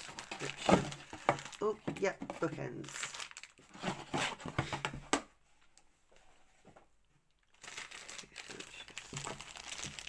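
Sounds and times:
plastic bag crinkling: 0.0 - 3.7, 7.4 - 10.0.

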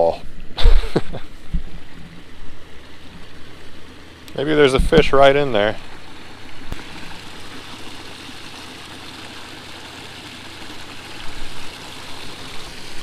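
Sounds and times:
water splashing over waterfall: 2.8 - 13.0.

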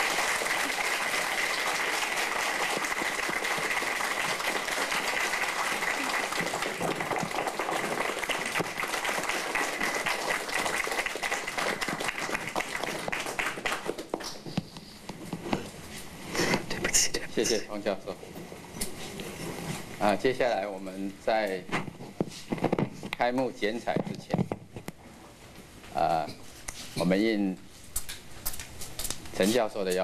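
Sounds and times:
audience applauding: 0.0 - 14.5.

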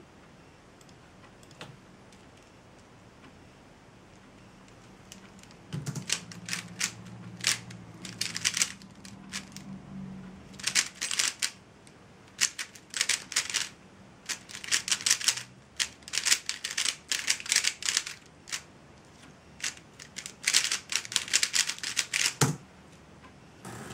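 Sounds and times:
puzzle cube plastic clicking: 5.1 - 9.6, 10.6 - 11.6, 12.3 - 18.7, 19.6 - 22.6.

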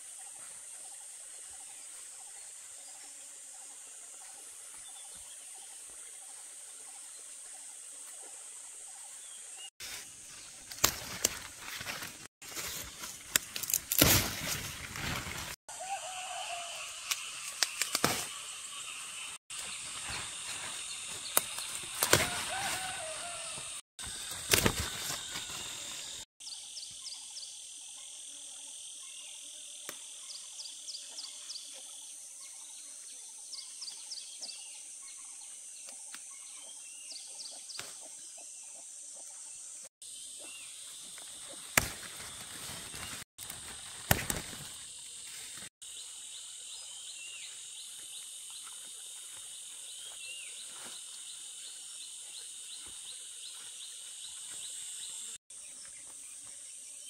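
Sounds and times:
high-pitched insect buzz: 15.7 - 57.0.

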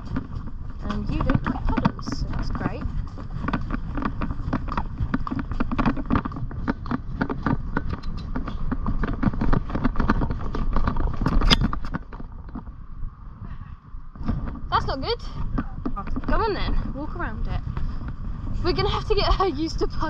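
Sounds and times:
pony hoofbeats: 0.0 - 13.0, 14.1 - 20.0
steady low rumble: 0.0 - 20.0.

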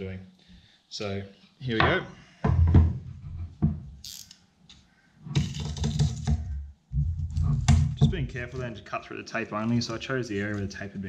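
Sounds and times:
knock: 1.8 - 3.9, 5.3 - 8.4.

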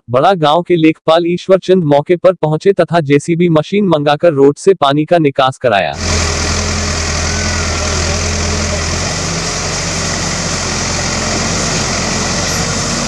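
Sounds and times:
diesel engine running: 6.0 - 13.0.

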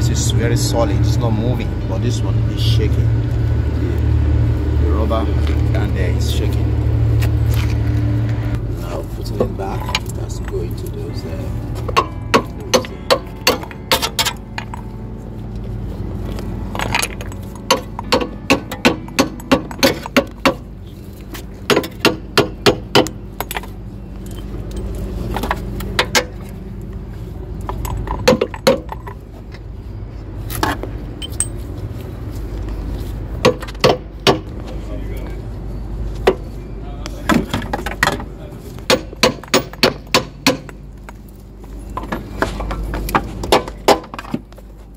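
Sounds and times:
steady low rumble: 0.0 - 33.4.

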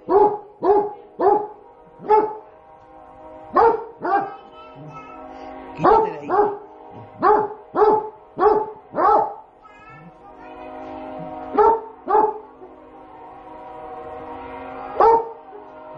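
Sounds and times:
dog barking: 0.0 - 2.4, 3.6 - 4.4, 5.8 - 9.4, 11.5 - 12.4, 15.0 - 15.3
background music: 0.0 - 15.9.

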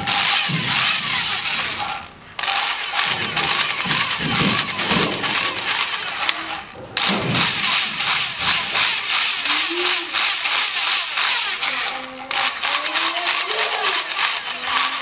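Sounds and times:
electric drill spinning: 0.0 - 15.0.

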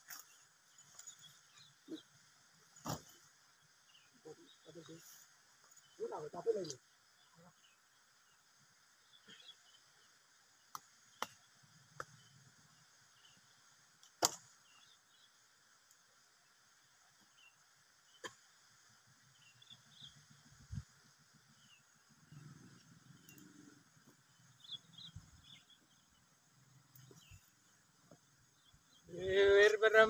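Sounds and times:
faint insect hiss: 0.0 - 30.0
sharp snaps: 14.0 - 14.5.

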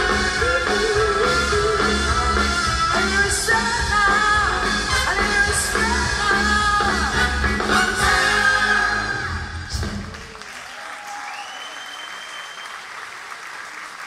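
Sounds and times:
band playing with singer: 0.0 - 10.2
audience applauding: 9.7 - 14.0.

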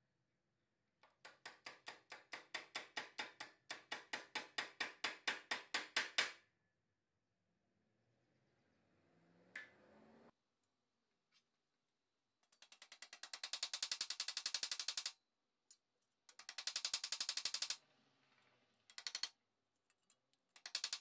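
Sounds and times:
hammer tapping steel strip: 1.0 - 6.4, 12.5 - 17.8, 20.1 - 21.0.

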